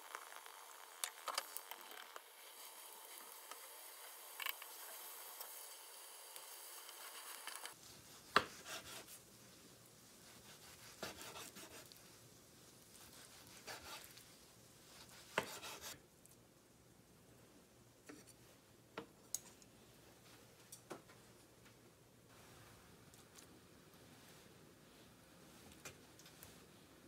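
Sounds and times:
omelette hissing in pan: 0.0 - 16.0
knife slicing omelette: 10.4 - 12.0, 12.9 - 14.2, 15.0 - 16.0.

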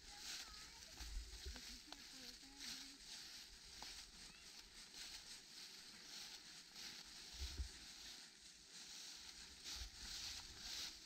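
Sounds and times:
footsteps in dry leaves: 0.0 - 11.0.

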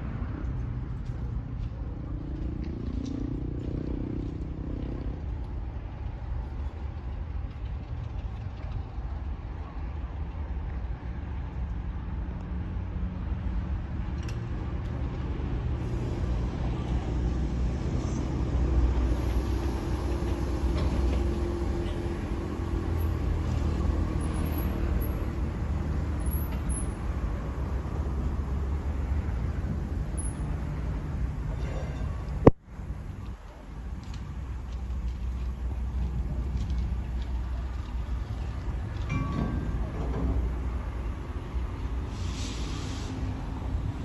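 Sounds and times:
diesel locomotive engine rumble: 0.0 - 44.0.

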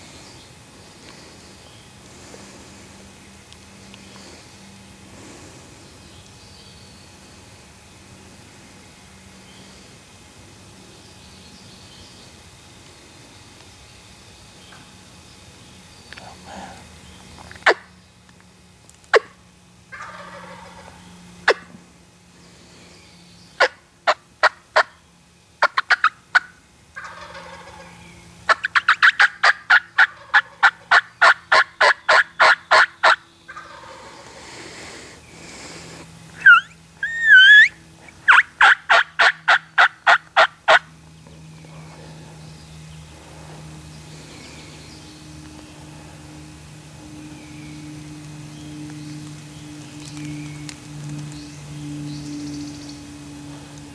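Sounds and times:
turkey clucks: 19.9 - 21.7, 23.6 - 24.9, 25.6 - 34.6, 36.4 - 40.9
turkey yelps: 25.6 - 27.9, 28.5 - 34.2, 36.4 - 40.9
wavering turkey call: 25.6 - 34.6, 36.3 - 40.9.

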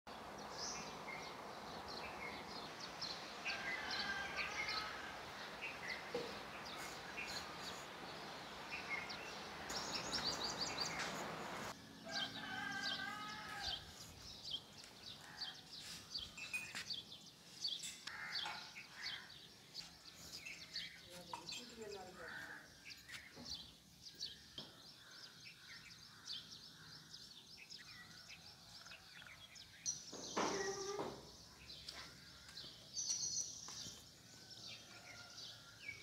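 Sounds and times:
small birds chirping: 0.1 - 36.0
rooster crowing: 3.4 - 5.3, 12.0 - 13.9
steady hiss: 5.4 - 11.8.

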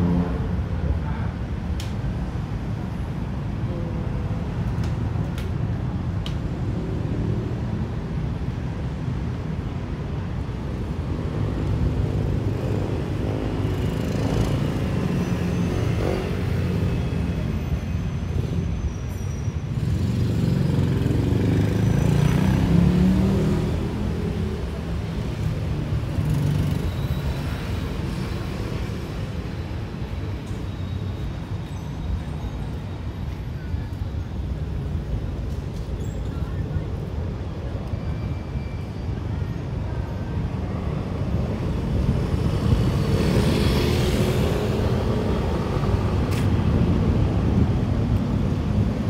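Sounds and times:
street traffic passing: 0.0 - 49.0.

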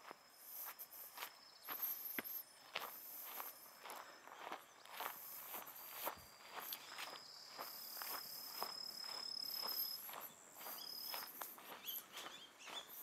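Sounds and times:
footsteps on grass: 0.0 - 13.0.

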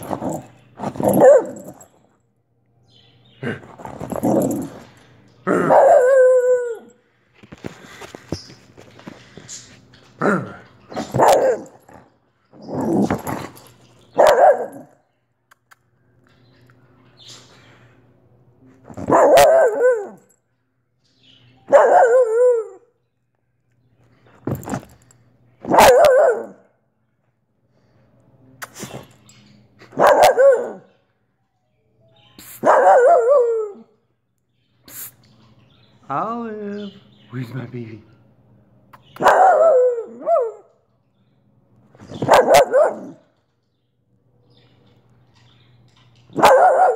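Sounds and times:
dog barking: 0.2 - 1.8, 5.5 - 6.4, 11.0 - 11.8, 14.2 - 15.0, 19.0 - 20.2, 21.7 - 22.4, 25.6 - 26.7, 29.9 - 30.9, 32.6 - 33.8, 39.2 - 40.7, 42.2 - 43.3, 46.4 - 46.9.

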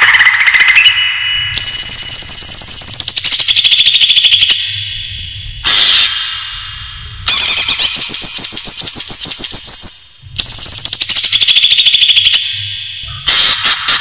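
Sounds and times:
bird singing sharp high notes: 0.0 - 4.8.

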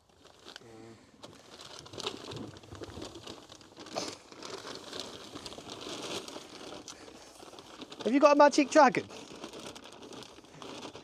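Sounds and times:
paper sack crinkling: 0.0 - 11.0.

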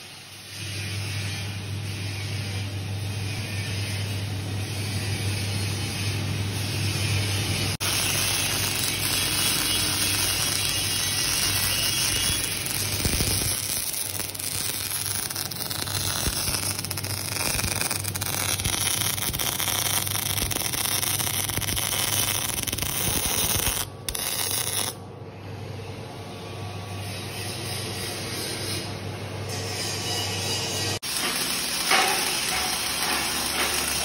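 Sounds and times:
welding arc crackling: 7.7 - 25.0, 31.0 - 34.0.

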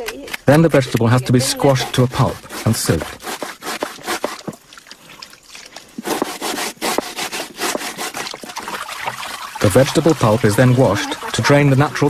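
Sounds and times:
roots rasping on grating board: 1.6 - 4.6, 6.0 - 8.7.

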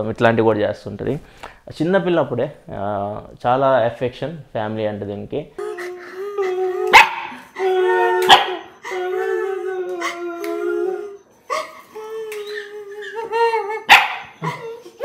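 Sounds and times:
puppy howling and whining: 5.7 - 15.0.

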